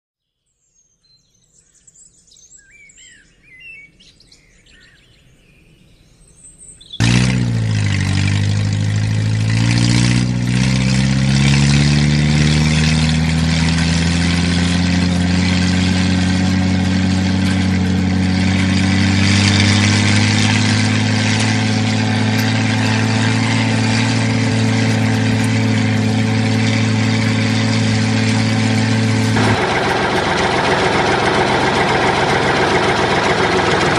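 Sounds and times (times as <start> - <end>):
loud engine idling: 7.0 - 33.9.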